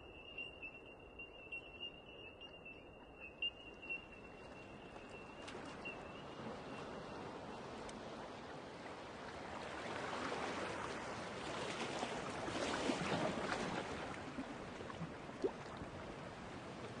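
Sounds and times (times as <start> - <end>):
wind: 0.0 - 17.0
rushing water: 4.4 - 17.0.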